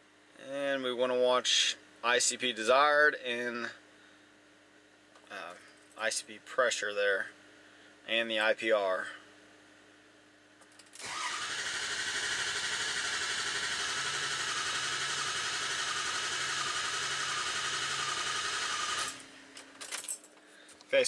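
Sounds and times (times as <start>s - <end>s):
diesel engine cranking on starter: 11.0s - 19.2s.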